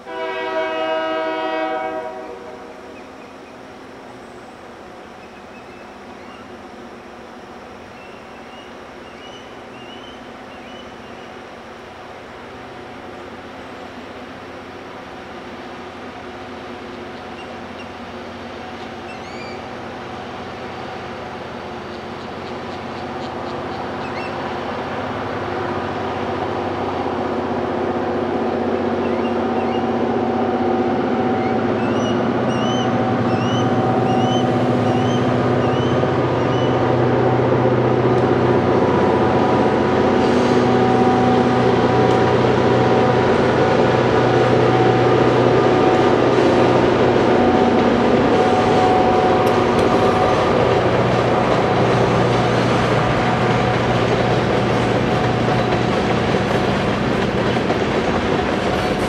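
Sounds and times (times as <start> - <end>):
diesel locomotive engine drone: 0.0 - 59.0
train wheel clicks: 47.7 - 59.0.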